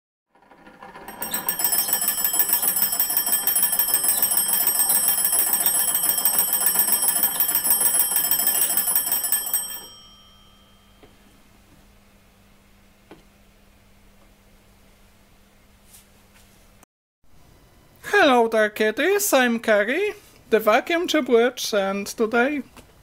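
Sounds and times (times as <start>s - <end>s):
telephone bell trill: 0.8s - 11.2s.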